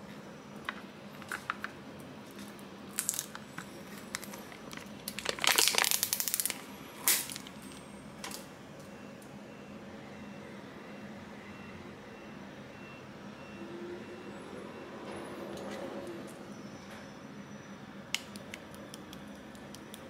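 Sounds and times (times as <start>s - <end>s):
plastic film lid crinkling: 4.0s - 7.5s
plastic seal crackling: 4.1s - 7.4s.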